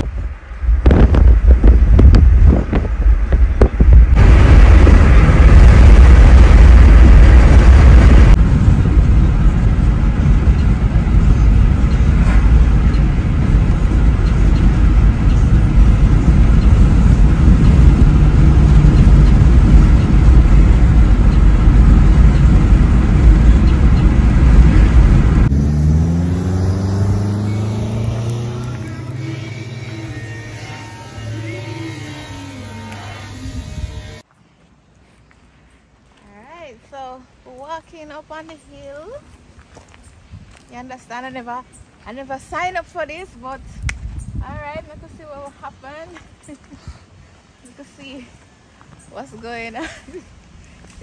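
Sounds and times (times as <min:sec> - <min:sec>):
car driving rumble: 0:00.0 - 0:34.2
rising tone: 0:00.8 - 0:34.2.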